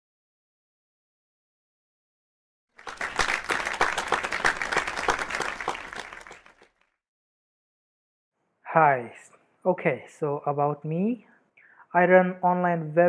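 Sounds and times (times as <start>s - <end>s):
audience applause: 2.8s - 6.7s.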